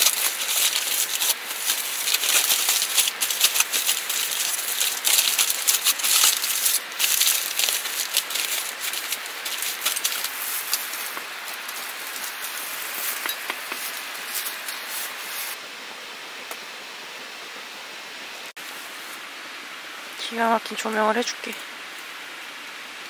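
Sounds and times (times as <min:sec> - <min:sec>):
aluminium foil crinkling: 0:00.0 - 0:15.6
steady hiss: 0:00.0 - 0:23.0.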